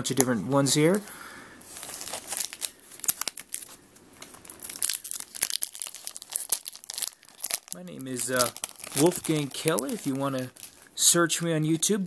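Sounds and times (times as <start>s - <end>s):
foil wrappers crinkling: 1.7s - 11.0s.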